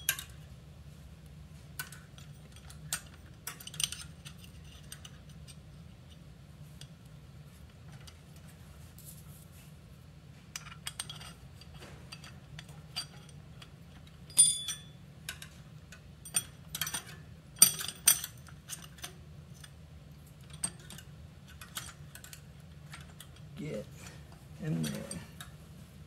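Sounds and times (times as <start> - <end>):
small metal parts clinking: 0.0 - 0.5, 1.8 - 5.6, 10.6 - 23.8, 24.6 - 25.6
low steady hum: 0.0 - 26.0.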